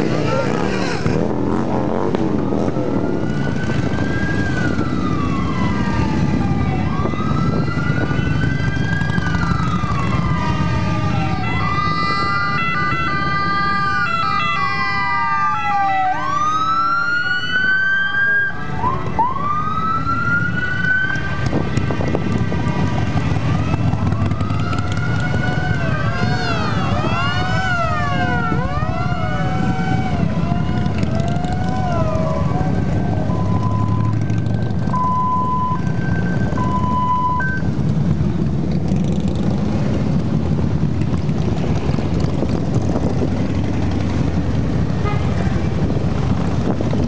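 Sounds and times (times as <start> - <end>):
motorcycles rumbling past: 0.0 - 14.0, 19.8 - 36.7, 37.7 - 47.0
siren wailing: 1.9 - 37.8.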